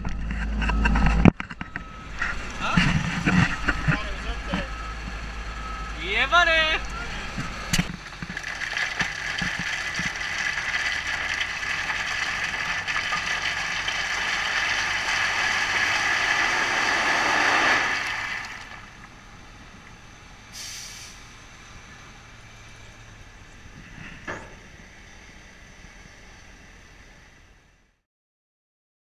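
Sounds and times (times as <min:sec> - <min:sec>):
truck engine running: 0:00.0 - 0:27.9
rocks sliding out of dump truck: 0:07.3 - 0:19.1.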